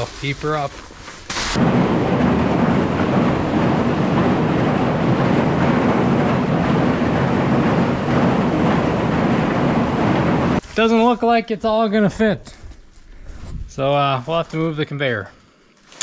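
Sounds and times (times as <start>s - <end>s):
tractor engine running: 0.0s - 10.6s
ear corn clattering along elevator: 0.0s - 12.2s.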